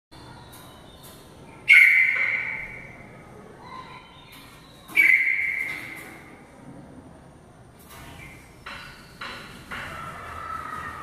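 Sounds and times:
bird whistled calls: 1.7 - 2.8, 4.6 - 6.0.

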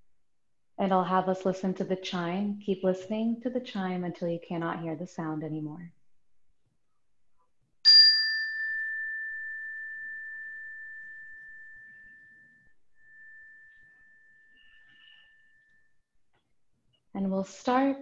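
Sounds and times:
chime ringing: 7.9 - 15.9.

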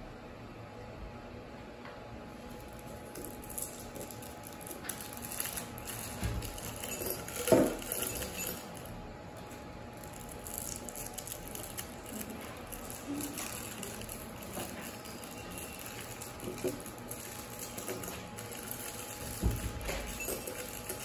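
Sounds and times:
candies clinking in glass: 3.2 - 8.9, 10.0 - 21.0
plastic wrappers crinkling: 9.6 - 21.0.

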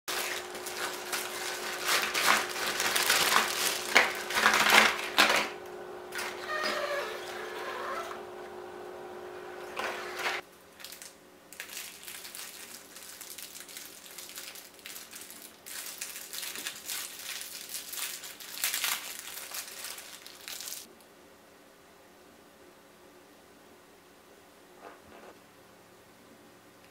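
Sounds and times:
cellophane bag crinkling: 0.1 - 6.6, 10.7 - 20.9
plastic boxes shuffled: 0.1 - 8.3.

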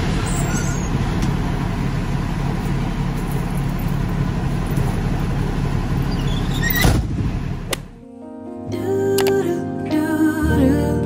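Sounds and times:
truck engine rumbling: 0.0 - 8.0.

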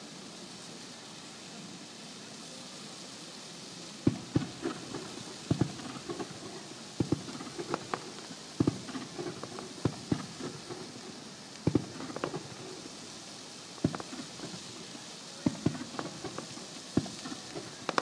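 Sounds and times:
crackling pops: 4.0 - 18.0
fireworks bangs: 4.0 - 18.0.

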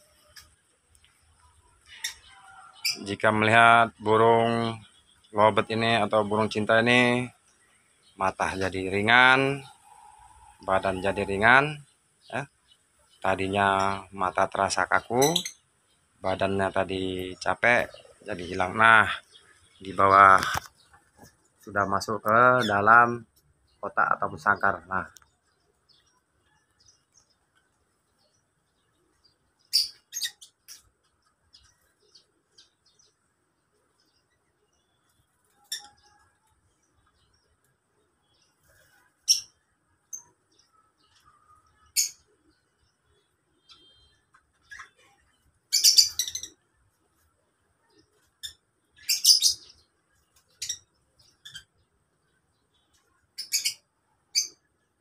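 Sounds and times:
lovebirds chirping: 0.0 - 55.0.

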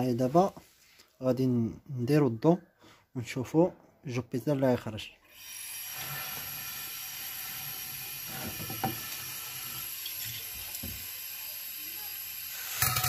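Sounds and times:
compressed air hissing from pipe: 5.4 - 13.0.

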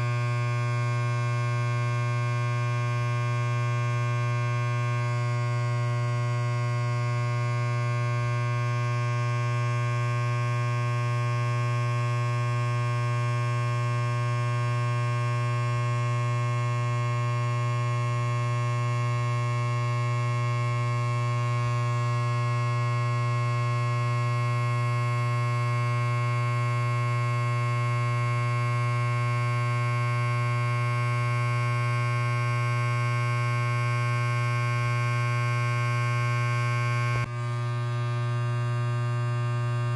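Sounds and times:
electric hair clipper buzzing: 0.0 - 39.9.

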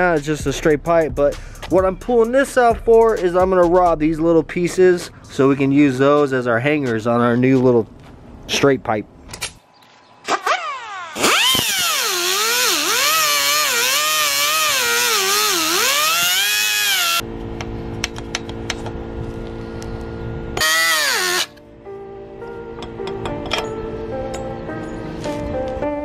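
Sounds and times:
pneumatic cut-off tool cutting steel: 10.3 - 17.2, 20.6 - 21.6
background music: 21.5 - 26.0.

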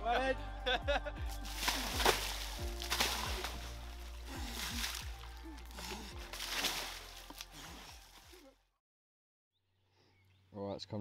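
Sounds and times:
fish splashing in water: 1.4 - 7.9.

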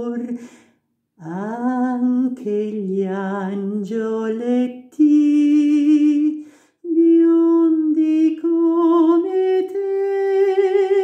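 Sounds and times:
man singing unaccompanied: 0.0 - 0.4, 1.2 - 11.0
man breathing: 0.4 - 0.9, 6.4 - 6.8.

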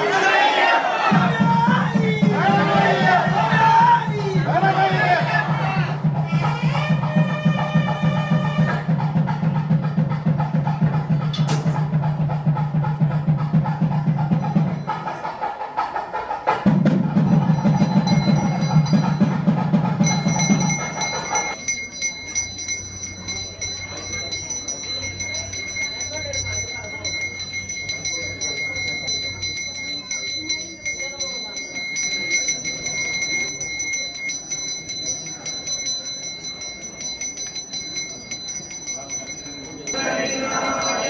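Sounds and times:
drums beating fast: 1.0 - 41.0
hand bell ringing: 17.2 - 41.0.

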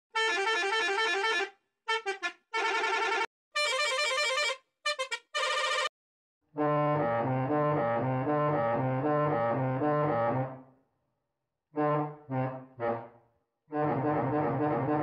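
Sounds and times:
bus horn warbling: 0.1 - 5.9.

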